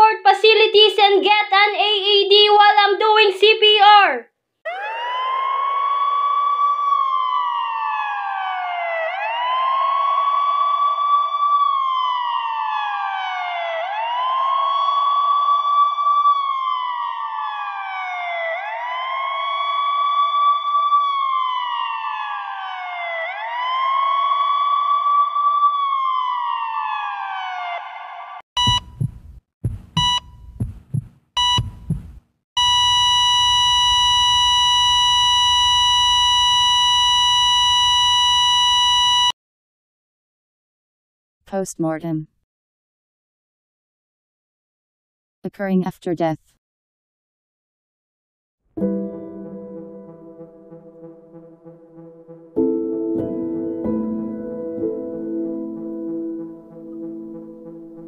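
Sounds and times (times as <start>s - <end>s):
emergency siren wailing: 4.6s - 28.4s, 32.6s - 39.4s, 55.6s - 58.0s
heart monitor beeps: 28.6s - 39.3s
steady flatline tone: 32.6s - 39.3s.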